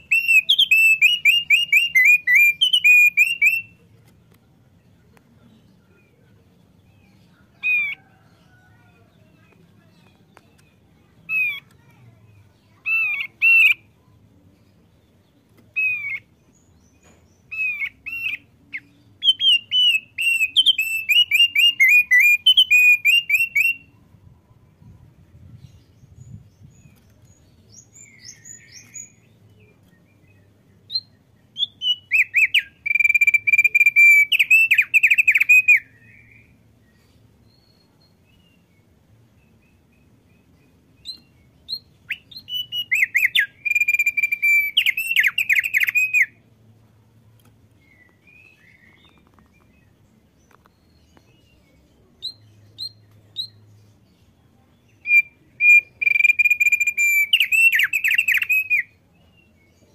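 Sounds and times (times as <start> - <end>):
bird whistled notes: 0.0 - 3.7, 42.1 - 46.3, 55.0 - 58.9
bird rapid chirping: 0.0 - 3.8, 12.8 - 13.9, 17.5 - 23.8, 30.9 - 35.9, 40.7 - 46.3, 55.0 - 58.8.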